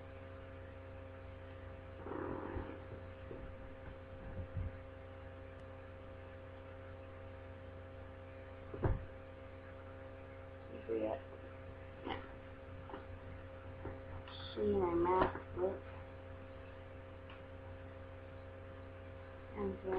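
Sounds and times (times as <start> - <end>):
electrical mains hum: 0.0 - 19.9.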